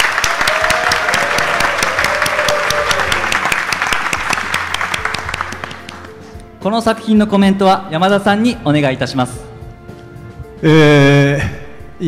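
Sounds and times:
audience applauding: 0.0 - 6.2.

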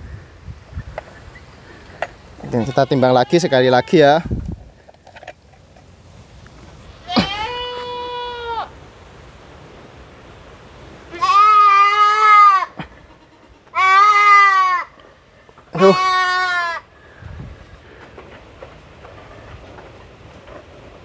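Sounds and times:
goats bleating: 2.4 - 4.2, 7.0 - 8.7, 11.1 - 14.9, 15.7 - 16.9.

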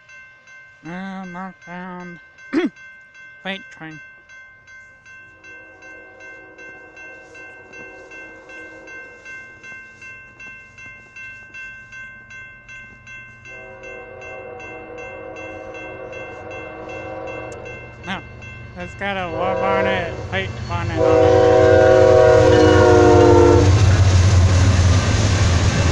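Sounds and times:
crossing bell ringing: 0.0 - 25.9
train rumble: 5.0 - 25.9
locomotive horn blast: 13.5 - 17.7, 19.2 - 23.9.

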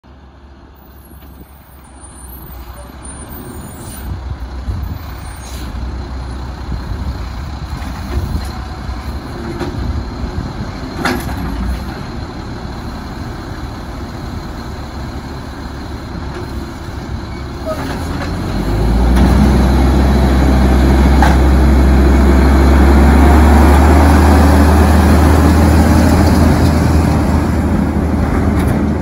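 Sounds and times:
garbage truck diesel engine: 0.0 - 29.0
air brake hisses: 5.2 - 5.8.

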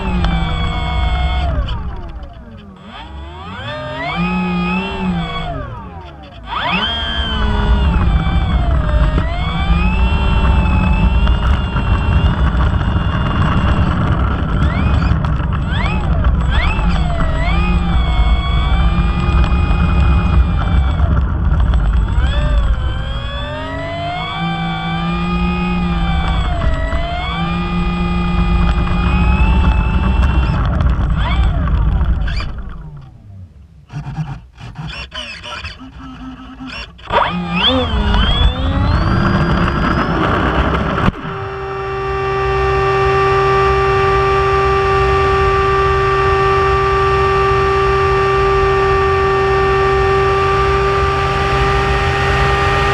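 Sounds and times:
steady low rumble: 0.0 - 33.9
model plane motor whining: 0.0 - 52.9.

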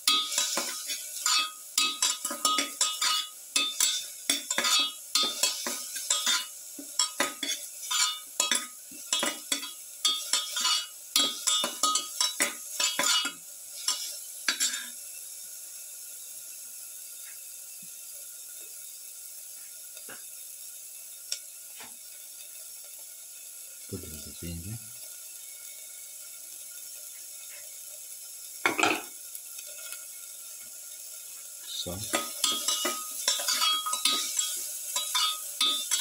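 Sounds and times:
onions sizzling in oil: 0.0 - 36.0
spatula scraping a metal pan: 0.1 - 15.0, 32.2 - 36.0.

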